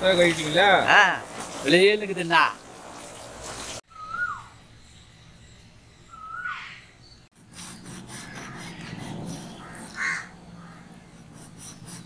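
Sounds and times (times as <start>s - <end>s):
bird chirp: 3.9s - 11.0s.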